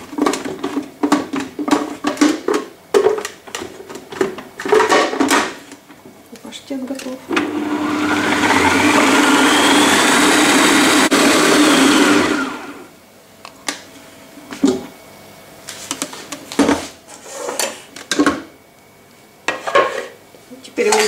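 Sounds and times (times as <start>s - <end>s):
food processor running: 7.3s - 12.9s.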